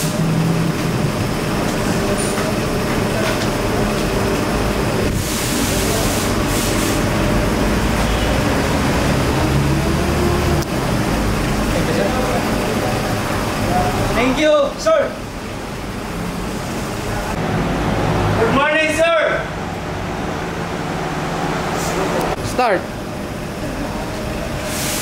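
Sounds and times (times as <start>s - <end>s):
workshop machinery humming: 0.0s - 25.0s
burst of hissing: 5.2s - 7.1s, 24.6s - 25.0s.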